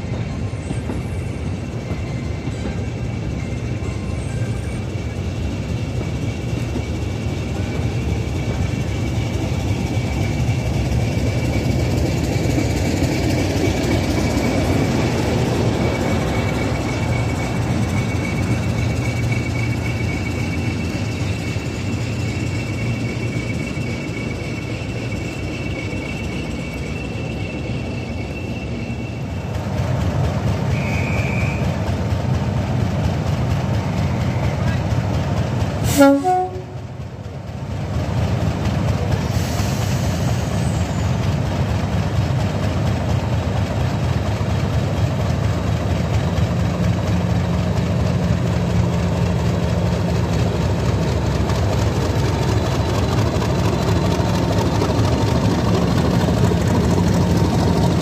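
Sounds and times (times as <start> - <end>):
diesel locomotive engine rumble: 0.0 - 58.0
train coaches rolling past: 0.0 - 58.0
turbocharger whistle: 30.7 - 31.8.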